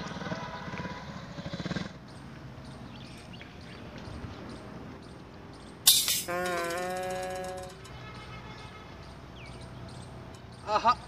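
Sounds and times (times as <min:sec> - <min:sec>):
motorcycle engine approaching: 0:00.0 - 0:04.6.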